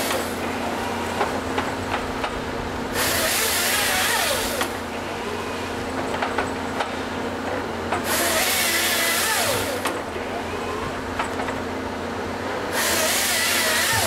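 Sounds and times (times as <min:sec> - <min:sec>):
diesel engine running: 0:00.0 - 0:14.0
harvester head squealing on log: 0:12.8 - 0:14.0.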